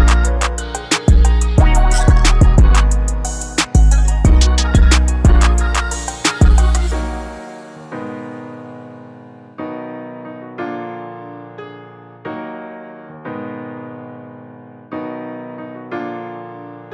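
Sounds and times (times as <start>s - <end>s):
slow piano chords: 0.0s - 16.9s.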